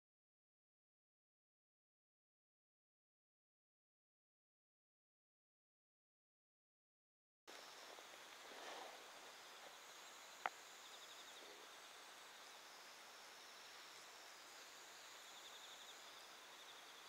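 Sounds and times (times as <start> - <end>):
insects chirping in trills: 7.5 - 17.0.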